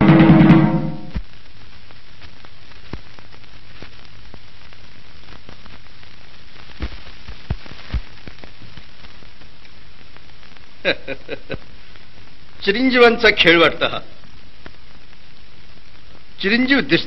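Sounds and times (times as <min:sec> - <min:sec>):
film soundtrack hiss and crackle: 0:00.0 - 0:17.0
faint clicks: 0:02.2 - 0:10.7.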